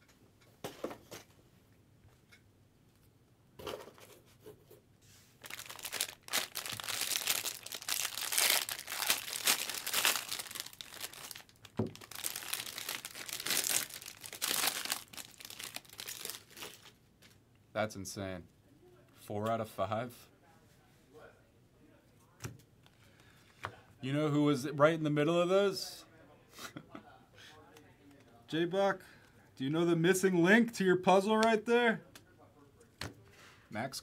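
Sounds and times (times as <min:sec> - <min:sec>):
foil wrapper tearing and crinkling: 0:05.4 - 0:17.0.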